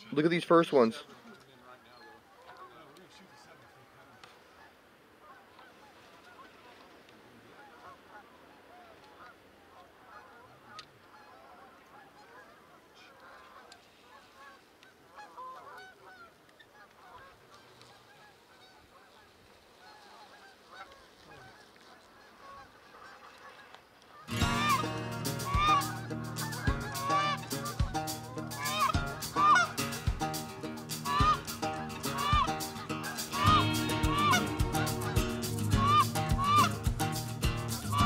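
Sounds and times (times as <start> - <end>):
geese honking: 1.7 - 6.7, 7.5 - 38.0.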